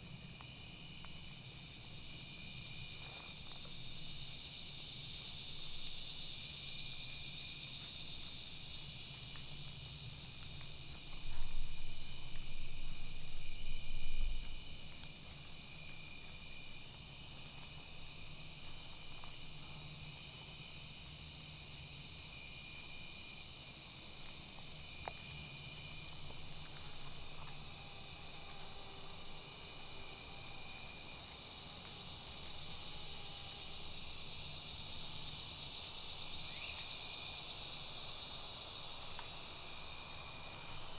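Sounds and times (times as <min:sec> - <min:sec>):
insects hissing: 0:00.0 - 0:40.9
insect trilling: 0:10.4 - 0:19.4.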